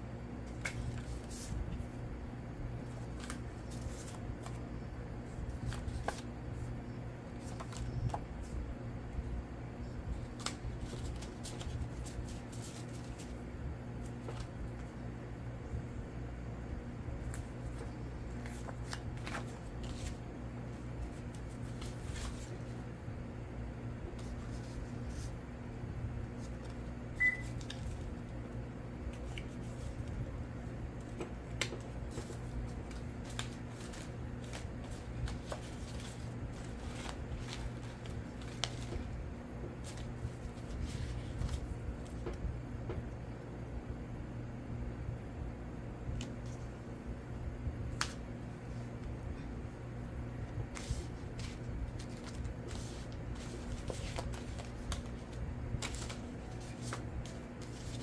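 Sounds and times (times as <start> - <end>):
paper rustling: 0.4 - 1.9, 2.8 - 4.6, 5.2 - 6.7, 7.3 - 8.6, 10.1 - 13.4, 14.0 - 15.0, 17.2 - 22.8, 24.1 - 25.4, 26.3 - 28.3, 29.1 - 30.2, 31.0 - 42.4, 50.7 - 58.0.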